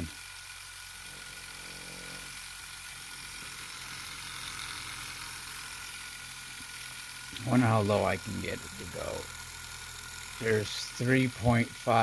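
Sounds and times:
pulse motor humming: 0.0s - 12.0s.

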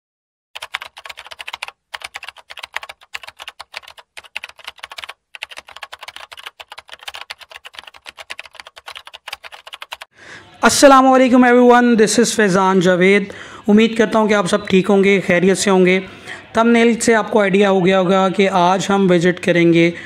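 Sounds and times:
keyboard typing clicks: 0.6s - 10.1s.

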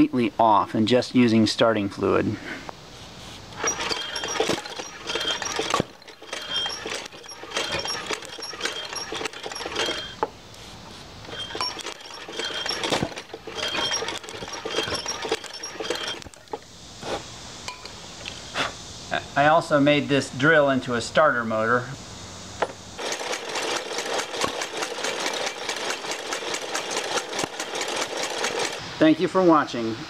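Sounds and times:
engine metallic clicking and clinking: 3.6s - 10.3s, 11.2s - 16.6s, 23.0s - 28.8s.

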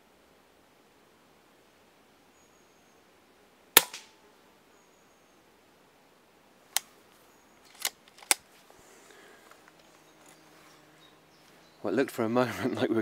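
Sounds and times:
air rifle shot crack: 3.8s - 4.2s.

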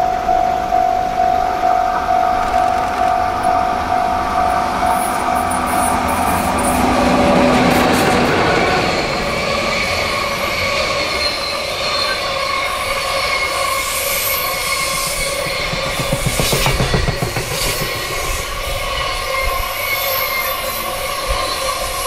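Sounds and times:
electric locomotive hum: 0.0s - 22.0s
train wagons rolling by: 2.1s - 22.0s
wheels squealing: 5.0s - 21.9s.

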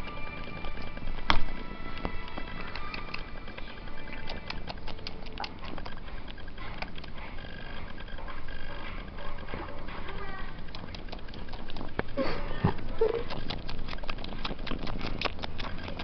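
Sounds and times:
background music: 0.0s - 10.6s.

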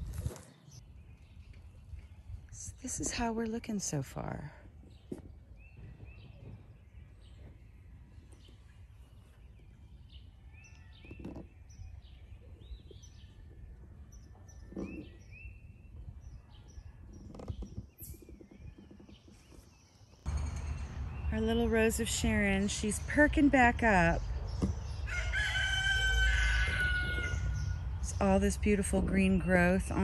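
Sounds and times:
songbirds chirping: 0.0s - 30.0s
low outdoor rumble: 20.2s - 30.0s.

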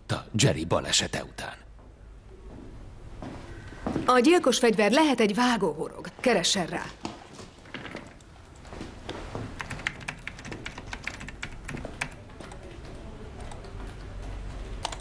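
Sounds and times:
computer keyboard key clicks: 9.6s - 12.6s, 14.8s - 15.0s.

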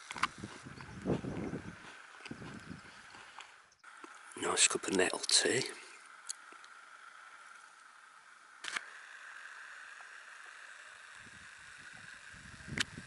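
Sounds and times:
faint outdoor hiss: 0.0s - 13.0s.

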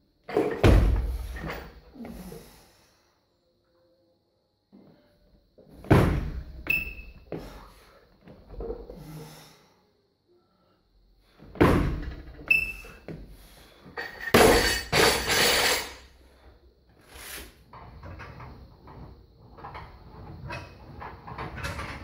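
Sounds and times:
barbell plates crashing: 14.0s - 16.0s.

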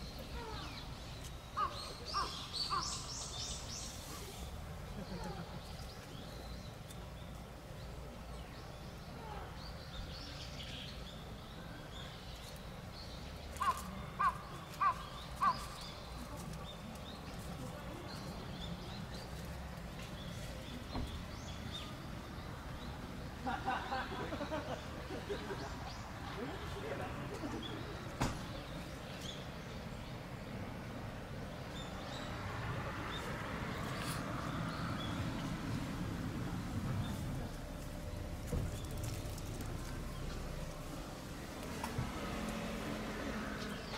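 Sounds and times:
faint small birds chirping: 0.0s - 23.1s
low steady rumble: 34.3s - 43.6s.

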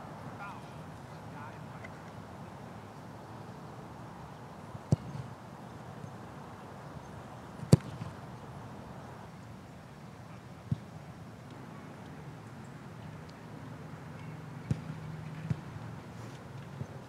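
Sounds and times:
soccer ball kick thuds: 4.9s - 5.3s, 7.6s - 8.2s, 14.6s - 15.8s.

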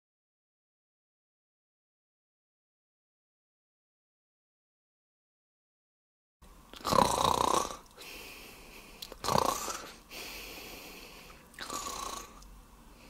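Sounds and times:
person snoring: 6.8s - 12.4s.

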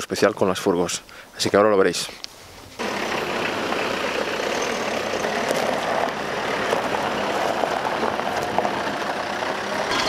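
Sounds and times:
tyres on gravel: 2.8s - 10.0s
van engines running: 2.8s - 10.0s.

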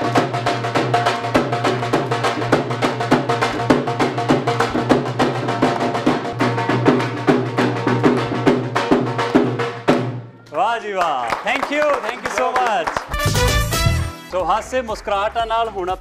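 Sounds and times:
dhol drum fast beat: 0.0s - 10.2s.

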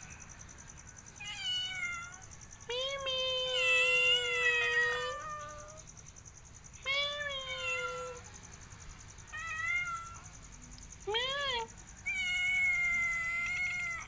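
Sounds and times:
cat meowing: 1.2s - 5.8s, 6.8s - 8.2s, 9.3s - 10.2s, 11.1s - 14.0s.

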